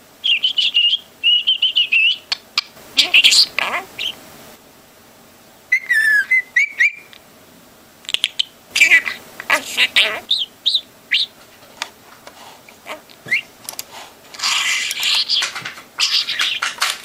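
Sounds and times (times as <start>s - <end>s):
budgerigar chattering and chirping: 0.3s - 4.2s, 8.1s - 11.3s
budgerigar scratchy warble: 3.0s - 4.2s, 8.8s - 11.5s, 12.8s - 13.5s, 14.4s - 17.0s.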